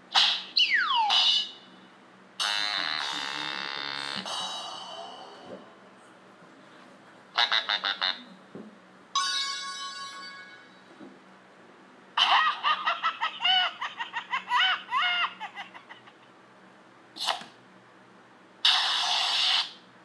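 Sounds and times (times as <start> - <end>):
high-pitched giggling laugh: 12.2 - 16.4.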